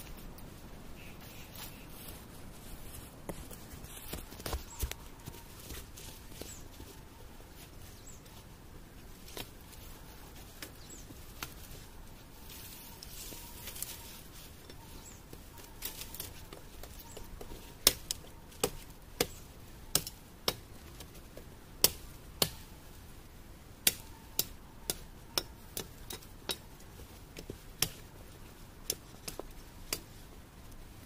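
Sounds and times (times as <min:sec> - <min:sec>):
dry branches cracking: 0:12.4 - 0:22.7.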